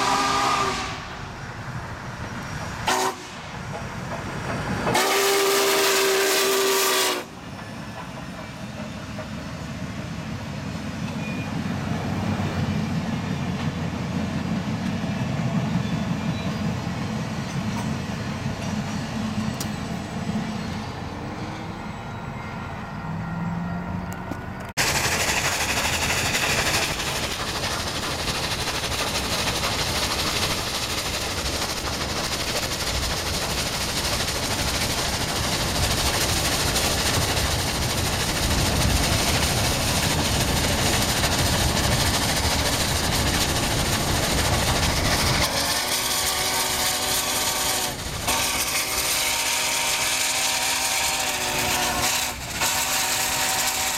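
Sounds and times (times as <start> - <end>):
steam locomotive running: 0.0 - 53.9
train cars clattering on rails: 2.0 - 10.3, 24.1 - 53.9
wind and road noise: 16.6 - 24.8.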